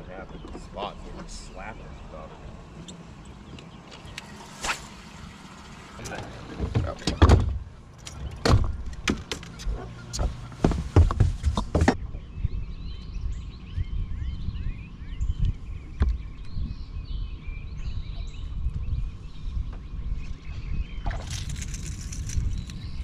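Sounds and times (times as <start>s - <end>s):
birds chirping: 0.0s - 23.0s
low rumble: 9.6s - 23.0s.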